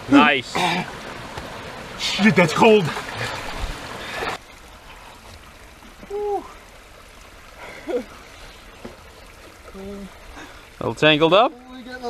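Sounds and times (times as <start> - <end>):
creek water splashing: 0.0 - 12.0.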